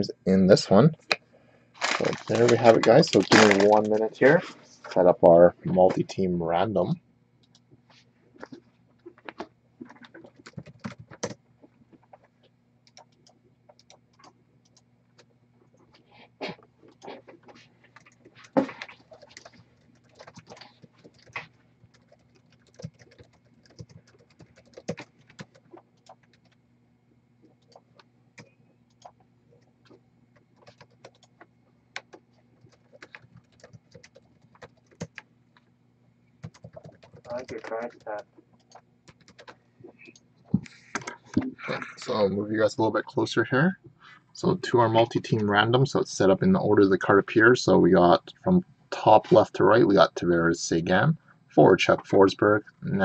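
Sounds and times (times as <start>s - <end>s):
faint low hum: 0.0s - 53.0s
typing on laptop keyboard: 9.8s - 11.4s, 12.8s - 15.3s, 18.0s - 26.6s, 27.4s - 35.3s, 36.4s - 38.0s, 38.6s - 40.2s.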